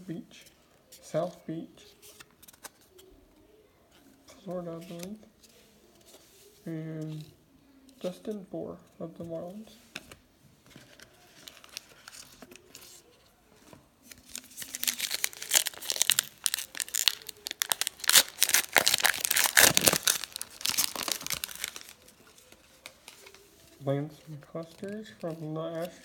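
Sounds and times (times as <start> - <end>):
wrapper tearing and crinkling: 14.1 - 23.4.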